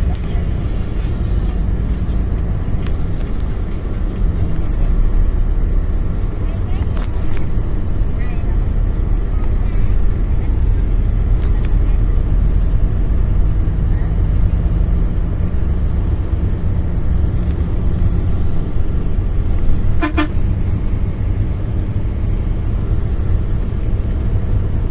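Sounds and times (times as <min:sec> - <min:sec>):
bus engine rumble and road noise: 0:00.0 - 0:24.9
pulsing horn honk: 0:19.9 - 0:20.6.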